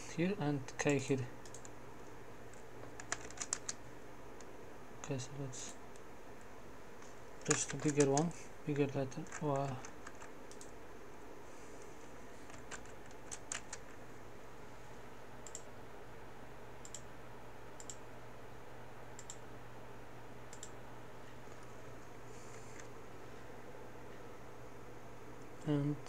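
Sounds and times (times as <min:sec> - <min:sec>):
steady low hum: 0:00.0 - 0:26.0
computer mouse clicks: 0:00.7 - 0:03.8, 0:09.2 - 0:10.8, 0:12.4 - 0:14.0, 0:15.4 - 0:15.7, 0:16.8 - 0:17.1, 0:17.8 - 0:18.1, 0:19.2 - 0:19.4, 0:20.5 - 0:20.8.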